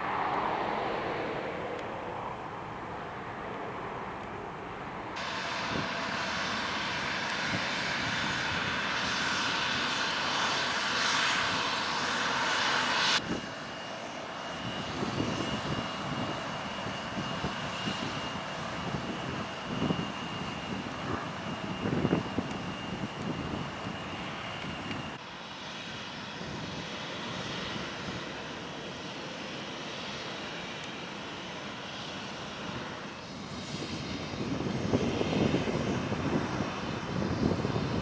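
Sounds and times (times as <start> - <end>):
loud rushing noise: 0.0 - 2.6
low rumble: 0.0 - 5.2
jet engine whine: 0.0 - 38.0.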